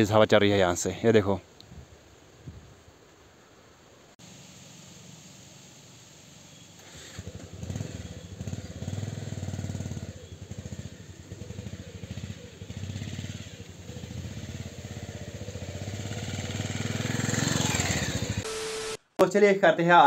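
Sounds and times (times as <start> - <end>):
motorcycle engine revving: 6.8 - 19.0.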